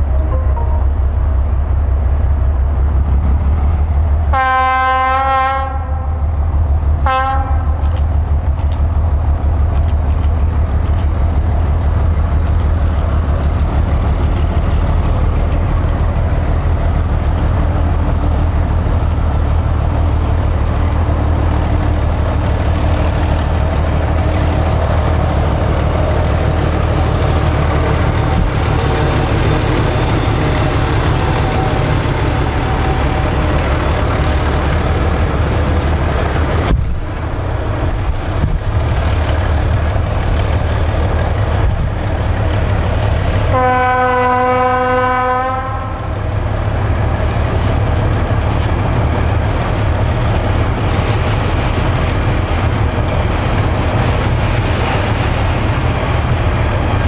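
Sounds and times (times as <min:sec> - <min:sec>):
diesel locomotive engine drone: 0:00.0 - 0:57.0
locomotive horn blasts: 0:04.3 - 0:06.2, 0:07.0 - 0:07.7, 0:43.5 - 0:46.2
train wagons rolling past: 0:05.8 - 0:57.0.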